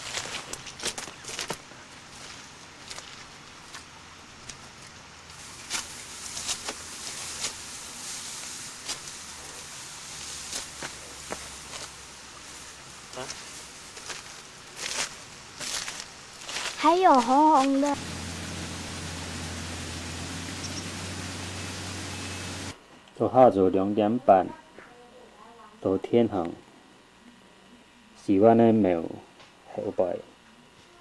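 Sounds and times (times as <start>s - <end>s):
stalks rustling: 0.0s - 22.7s
steady low hum: 0.0s - 31.0s
rice stalks being cut: 5.3s - 22.7s
even hiss: 5.3s - 22.8s.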